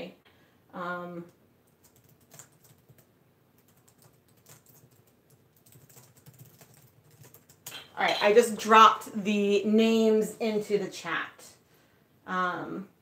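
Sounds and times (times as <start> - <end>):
laptop keyboard typing: 1.7 - 7.9.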